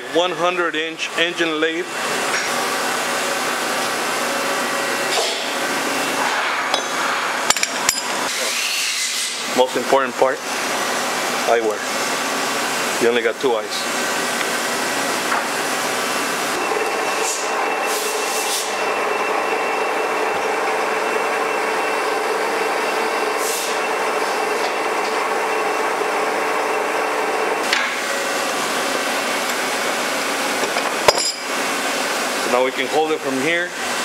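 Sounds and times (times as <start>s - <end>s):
lathe machine hum: 0.0s - 8.6s, 9.2s - 34.0s
thin machine whine: 3.2s - 34.0s
cutting tool hissing: 8.3s - 9.6s, 16.5s - 19.0s, 23.4s - 23.9s.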